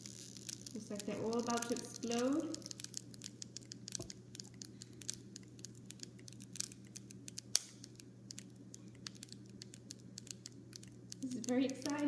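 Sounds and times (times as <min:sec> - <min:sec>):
foil balloon packs crackling: 0:00.0 - 0:12.0
sharp snap: 0:07.3 - 0:07.9.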